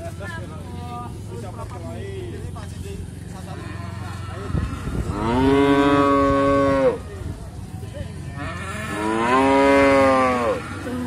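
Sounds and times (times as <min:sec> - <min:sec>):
bull mooing: 0:03.7 - 0:07.0, 0:08.4 - 0:11.0.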